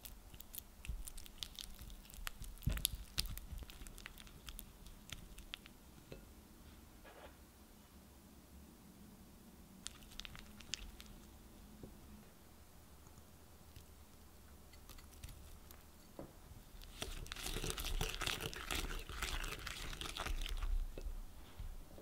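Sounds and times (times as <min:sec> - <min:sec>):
whisk beating butter and sugar: 0:16.8 - 0:20.8.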